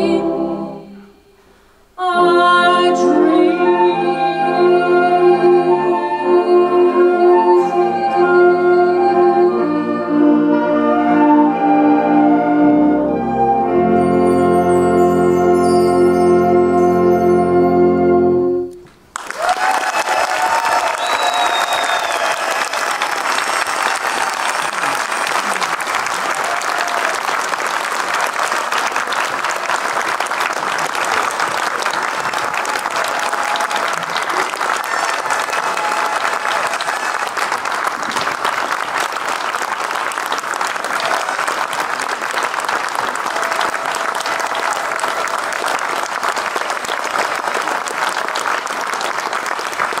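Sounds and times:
crowd applause: 19.1 - 50.0.

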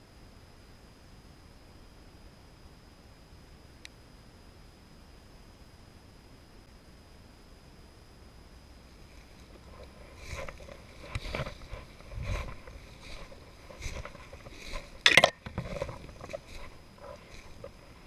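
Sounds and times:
footsteps through dry grass: 9.0 - 18.0
twig scraping against body: 9.1 - 18.0.

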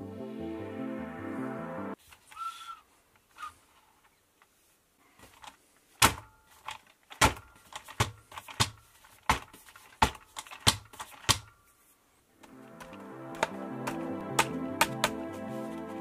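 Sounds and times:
plastic toy car knocking and rattling: 5.2 - 11.6.

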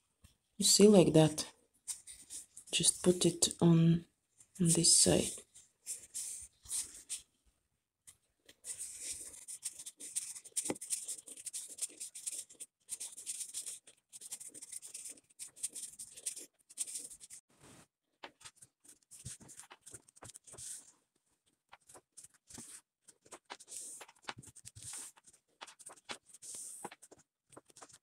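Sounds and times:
yarn scratching on cardboard tube: 8.5 - 21.0, 21.7 - 28.0.

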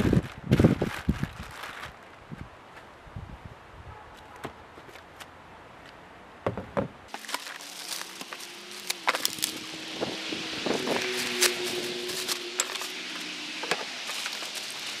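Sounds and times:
plastic wrapping crinkling: 0.0 - 2.2, 7.1 - 9.7, 10.8 - 15.0.

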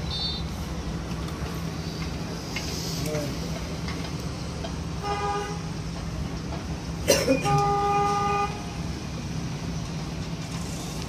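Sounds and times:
vehicle horn toot: 0.1 - 0.5, 5.0 - 5.7, 7.4 - 8.7.

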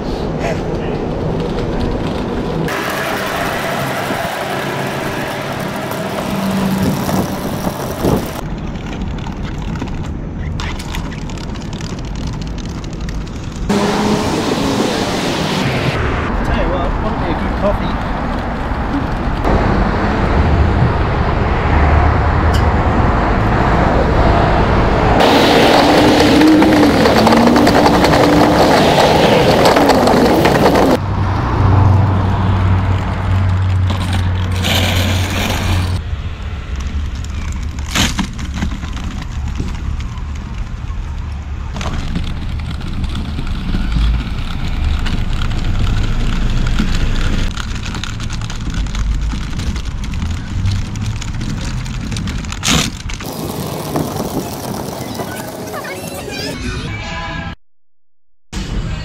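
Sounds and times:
passing traffic: 0.0 - 57.6, 58.6 - 59.0
wheelchair rolling on pavement: 0.5 - 13.7, 25.2 - 31.0, 32.6 - 36.0, 36.8 - 56.6.

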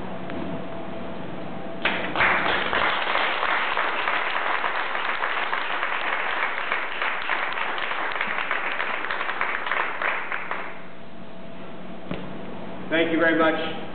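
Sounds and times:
audience applauding: 1.8 - 10.8.

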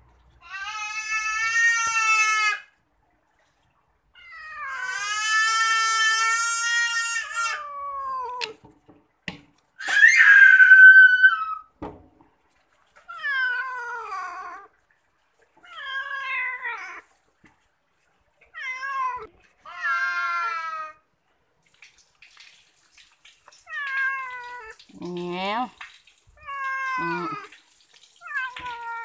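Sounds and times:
cat meowing: 4.2 - 8.6, 13.1 - 14.7, 18.5 - 21.0, 23.6 - 24.8, 26.4 - 27.5, 28.2 - 29.0.

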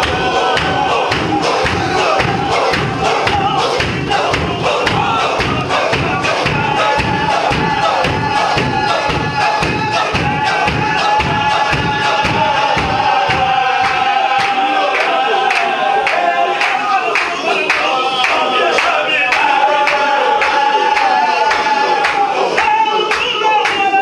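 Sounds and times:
bare feet stamping: 0.0 - 14.0
men chanting together: 0.0 - 24.0.

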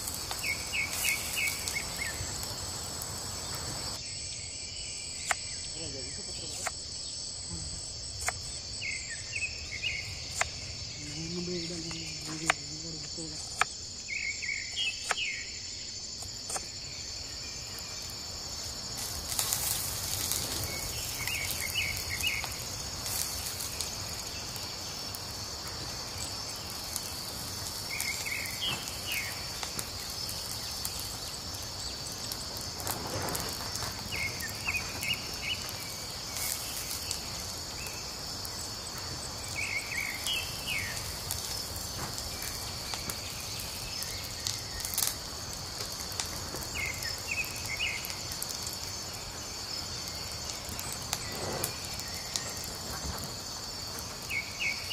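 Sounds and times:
insects chorus: 0.0 - 54.9
wood fire crackling: 0.0 - 54.9
bird chirping: 8.2 - 15.9.

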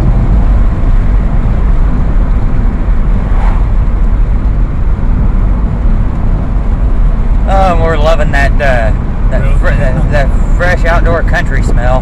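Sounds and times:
road and wind noise inside car: 0.0 - 12.0.

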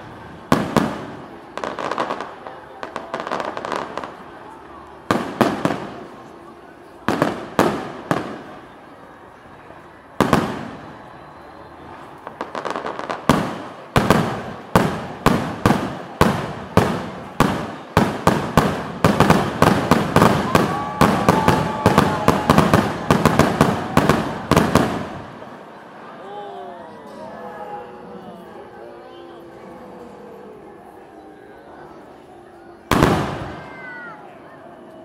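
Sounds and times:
firework crackling: 0.0 - 9.1, 10.0 - 11.1, 11.7 - 25.8, 32.9 - 34.2
fireworks exploding: 0.2 - 8.8, 10.2 - 11.1, 11.9 - 25.8, 32.9 - 34.1.

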